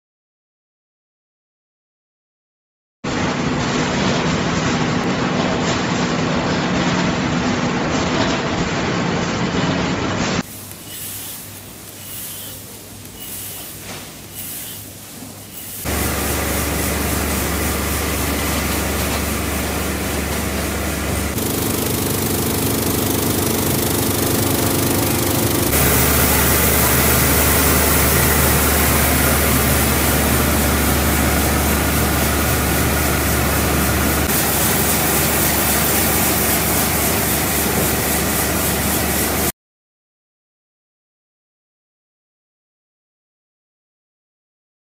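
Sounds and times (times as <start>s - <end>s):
rushing mechanical noise: 10.1s - 39.5s
machinery low hum: 15.5s - 39.5s.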